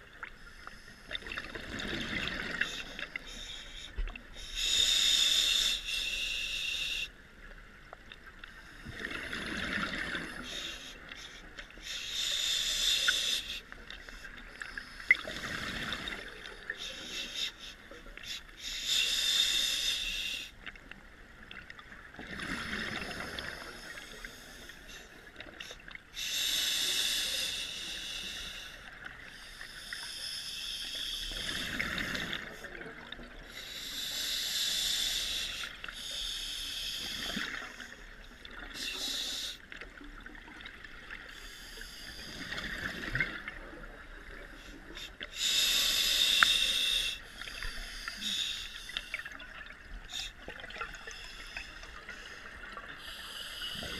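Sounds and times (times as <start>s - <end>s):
regulator inhalation hiss: 2.4s - 7.1s, 10.1s - 20.6s, 22.6s - 32.6s, 33.4s - 39.6s, 41.2s - 42.6s, 44.5s - 49.3s, 50.0s - 53.9s.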